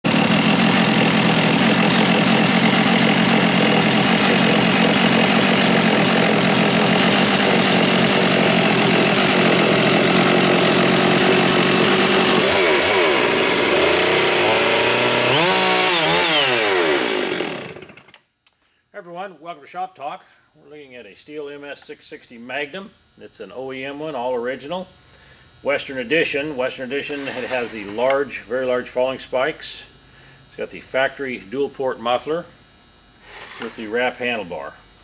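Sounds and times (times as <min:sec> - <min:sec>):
chainsaw engine running: 0:00.0 - 0:18.2, 0:27.0 - 0:28.2, 0:33.2 - 0:34.2.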